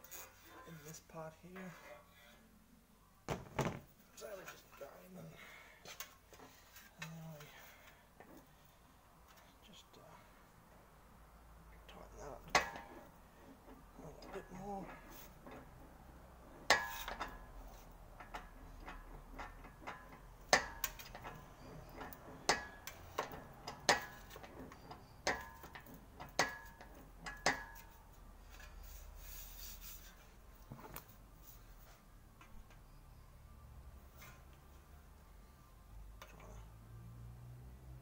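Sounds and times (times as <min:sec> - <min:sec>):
faint rubbing: 0:28.4 - 0:32.2.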